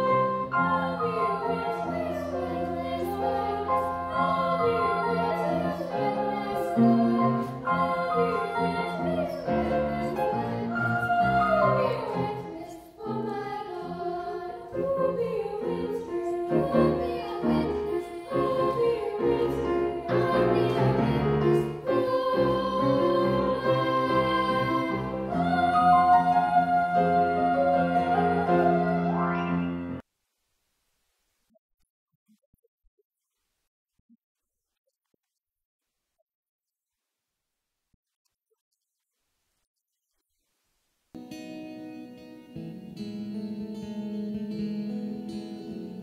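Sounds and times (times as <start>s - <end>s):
choir singing: 0.0s - 30.0s.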